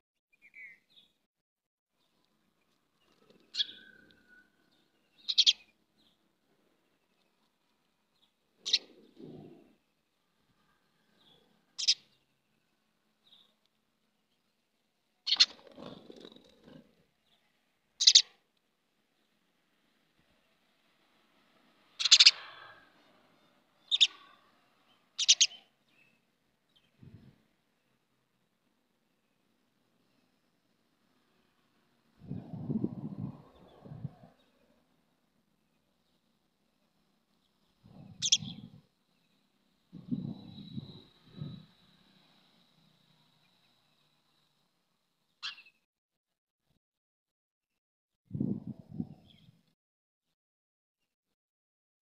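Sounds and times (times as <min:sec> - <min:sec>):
sparrows chirping: 0:00.4 - 0:01.2, 0:03.0 - 0:13.6, 0:15.2 - 0:18.4, 0:21.9 - 0:28.0, 0:35.7 - 0:44.5, 0:45.3 - 0:45.8.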